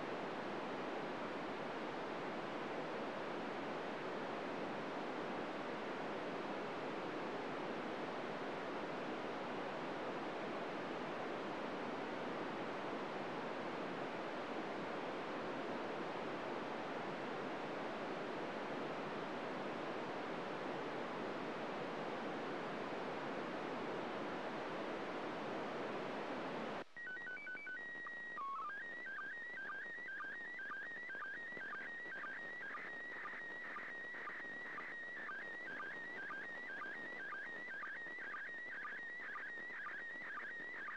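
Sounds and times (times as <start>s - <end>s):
radio static hiss: 20.7s - 40.9s
warbling radio signal tones: 27.0s - 40.9s.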